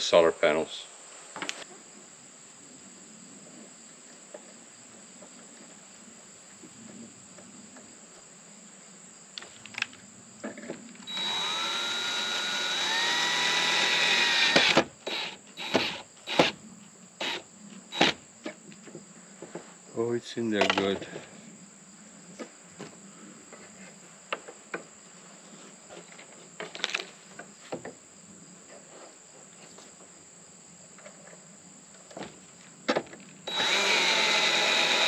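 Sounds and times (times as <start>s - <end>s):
crickets chirring: 0.0s - 35.0s
cordless drill motor whine: 11.0s - 16.6s, 33.5s - 35.0s.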